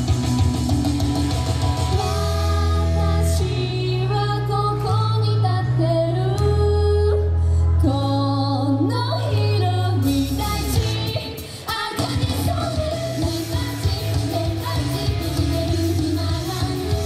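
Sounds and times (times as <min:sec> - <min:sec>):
driving band beat: 0:00.0 - 0:02.4
pop song over loudspeakers: 0:00.0 - 0:17.0
women singing into microphones: 0:02.0 - 0:17.0.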